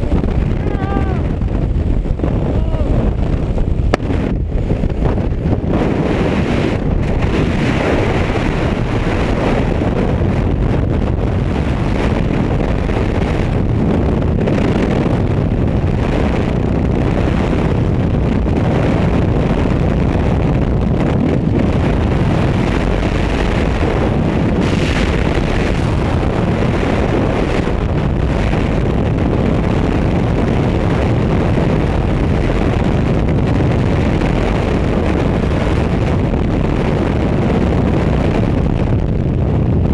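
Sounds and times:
freefall wind buffeting microphone: 0.0 - 39.9.

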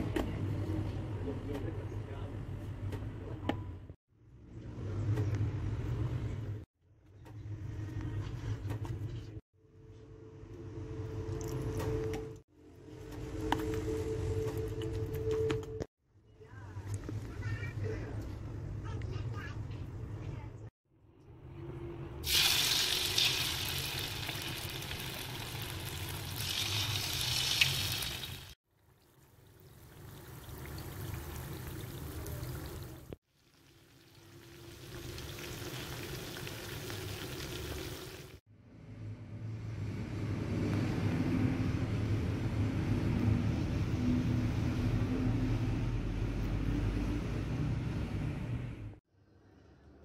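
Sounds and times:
batter sizzling in hot oil: 22.2 - 28.6, 29.3 - 38.4.

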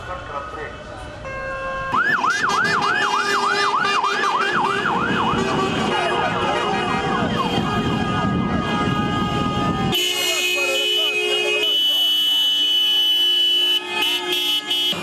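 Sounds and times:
several sirens wailing: 0.0 - 15.0
traffic noise: 0.0 - 15.0
vehicle horns: 1.1 - 15.0
electronic siren yelping: 1.9 - 8.6.

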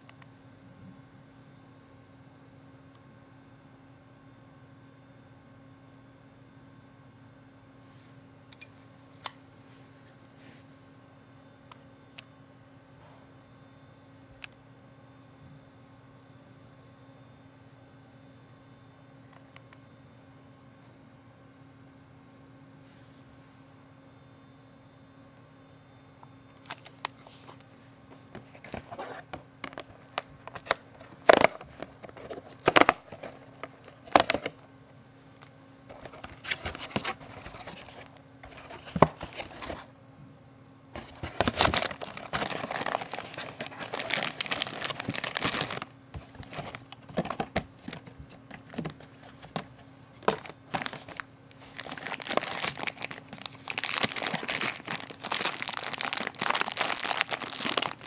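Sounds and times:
cardboard box being opened: 28.4 - 34.5, 35.9 - 39.9, 41.0 - 58.0
plastic bag crinkling: 28.4 - 34.6, 35.3 - 39.8, 41.0 - 58.0.

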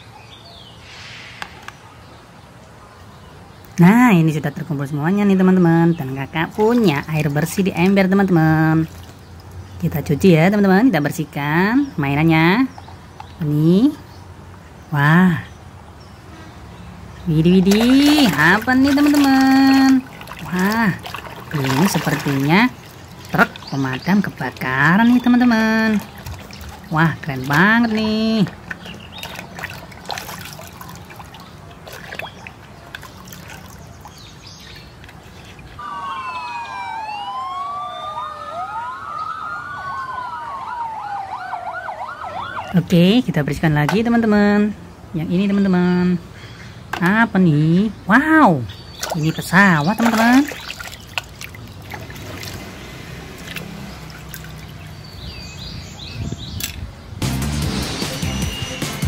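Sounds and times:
water sloshing in a bucket: 4.8 - 9.8, 17.1 - 35.8, 48.7 - 56.8
fire engine sirens wailing: 35.8 - 43.2.

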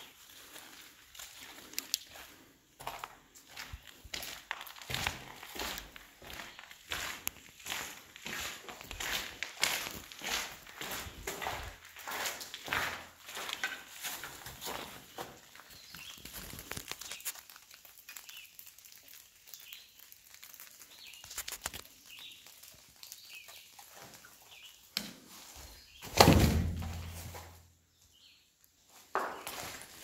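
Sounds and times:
footsteps on debris: 0.0 - 27.7, 28.8 - 30.0
loud close-up rustle: 15.7 - 26.0.

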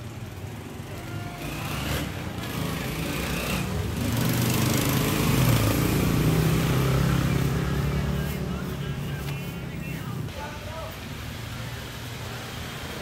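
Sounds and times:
small engine droning: 0.6 - 10.2.

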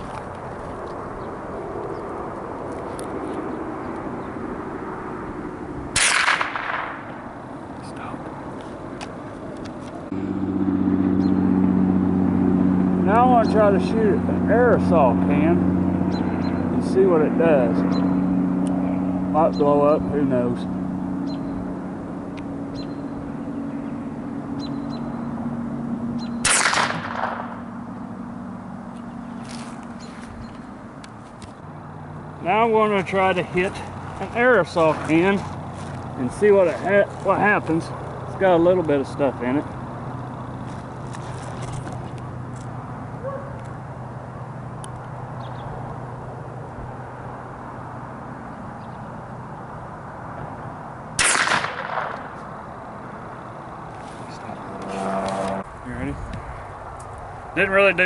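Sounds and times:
steady low hum: 0.0 - 58.0
rifle shot: 5.9 - 7.2, 26.4 - 27.6, 51.2 - 52.4.

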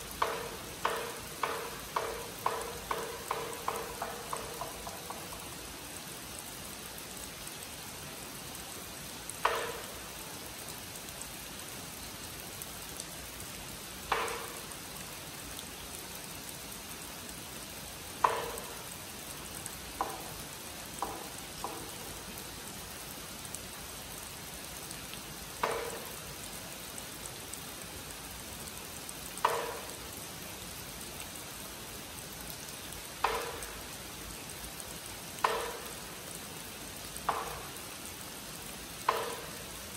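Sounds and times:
rain falling on pond and foliage: 0.0 - 39.9
wooden clapper strikes: 0.2 - 5.4, 9.4 - 10.0, 14.1 - 14.7, 18.2 - 18.8, 21.0 - 22.0, 25.6 - 26.2, 29.4 - 30.0, 33.2 - 33.8, 35.4 - 36.0, 39.1 - 39.6.

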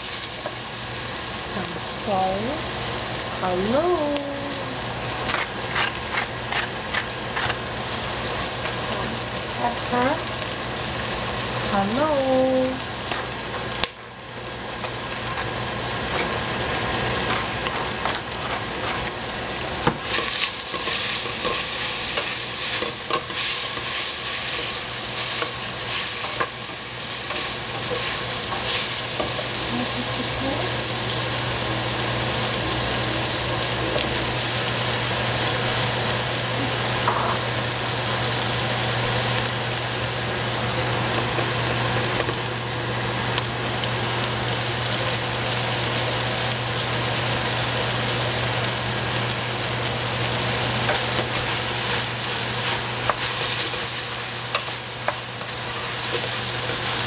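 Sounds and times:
food sizzling in a pan: 0.0 - 57.0
utensil scraping a pan: 5.3 - 7.6.

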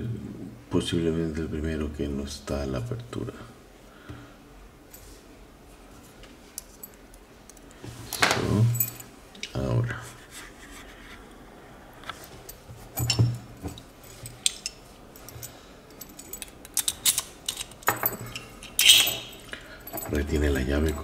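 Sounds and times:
keys jangling: 8.7 - 9.1, 12.5 - 21.0
key turning in a padlock: 15.4 - 21.0.

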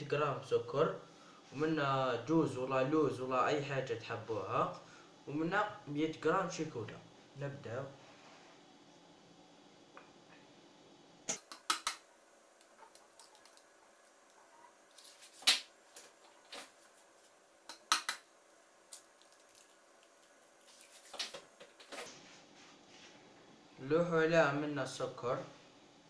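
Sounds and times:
eggs cracking on metal bowl: 11.3 - 16.6, 17.7 - 18.3, 18.9 - 21.8.

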